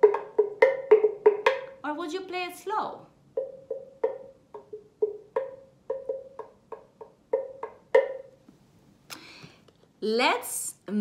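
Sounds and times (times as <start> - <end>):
drum strikes ringing: 0.0 - 1.8.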